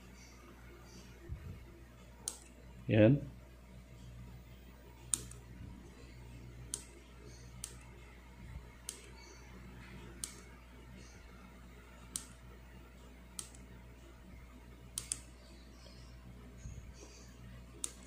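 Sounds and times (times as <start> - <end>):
push buttons clicking: 10.2 - 10.5, 14.9 - 15.3.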